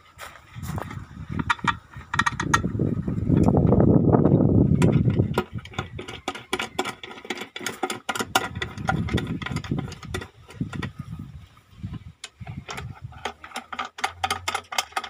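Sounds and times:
hand tools clicking and tapping: 0.8s - 2.7s, 4.8s - 11.1s, 12.2s - 15.0s.

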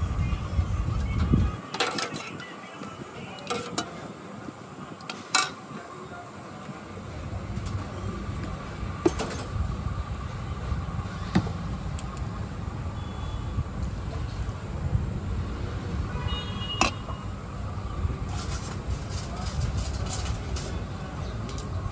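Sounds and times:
street stall background rumble: 0.0s - 21.9s
cutlery clinking on steel plates: 1.7s - 2.5s, 5.3s - 5.6s.

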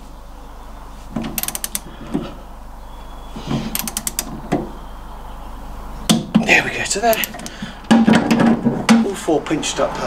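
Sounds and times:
ratchet wrench clicking: 1.4s - 1.9s, 3.7s - 4.3s.

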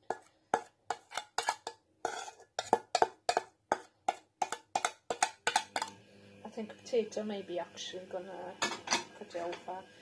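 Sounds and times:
spoon scraping metal saucepan: 0.0s - 6.0s.

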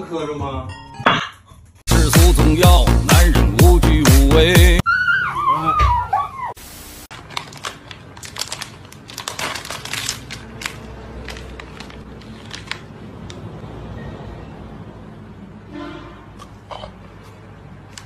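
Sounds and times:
plastic wrapper crinkling: 7.1s - 13.1s.

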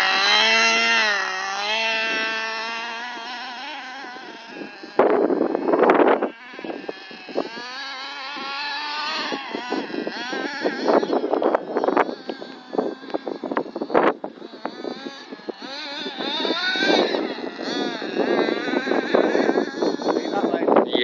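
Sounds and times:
small rc engine revving: 0.0s - 21.0s.

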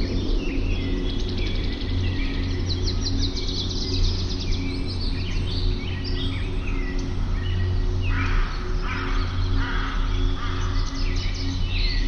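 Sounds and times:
birds chirping and calling: 0.0s - 12.0s
steady low hum: 0.0s - 12.0s
bird trilling: 6.0s - 12.0s.

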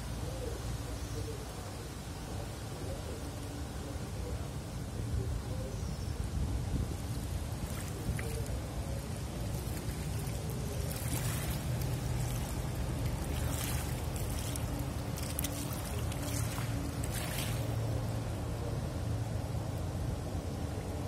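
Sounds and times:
waves lapping on pebbles: 7.2s - 18.1s
ship engine drone: 11.3s - 21.0s.

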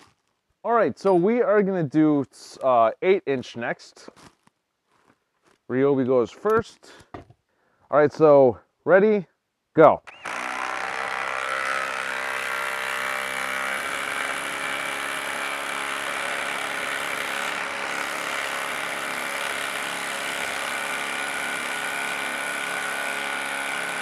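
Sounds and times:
impact driver hammering: 10.1s - 24.0s.

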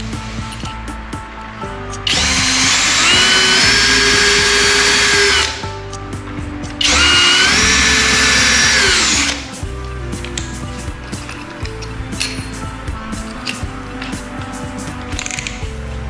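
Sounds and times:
electric drill whining: 2.1s - 5.6s, 6.8s - 9.6s.

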